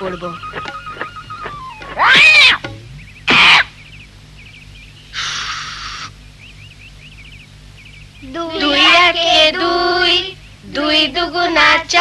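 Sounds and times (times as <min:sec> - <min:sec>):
cartoon parrot squawking: 0:00.0 - 0:02.7, 0:03.3 - 0:03.8
faint bird chirps: 0:00.0 - 0:09.2
short hiss: 0:05.1 - 0:06.2.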